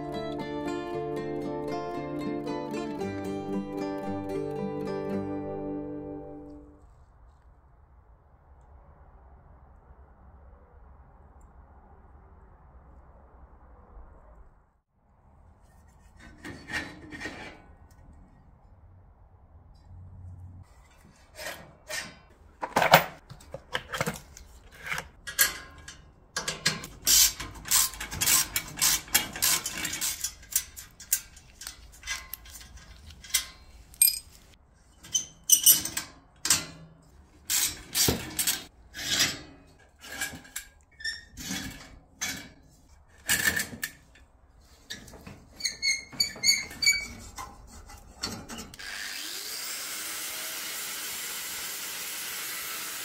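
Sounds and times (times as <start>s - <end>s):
metal clinks knocks and scrapes: 20.7s - 48.8s.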